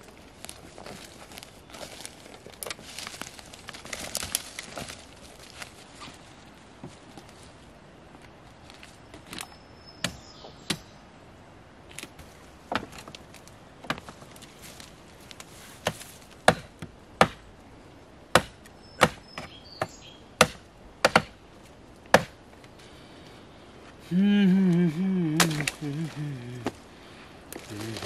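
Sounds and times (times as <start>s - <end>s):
blade chopping dry branches: 0.4s - 5.7s, 11.9s - 17.5s, 18.3s - 21.4s, 22.1s - 22.4s, 25.4s - 26.0s.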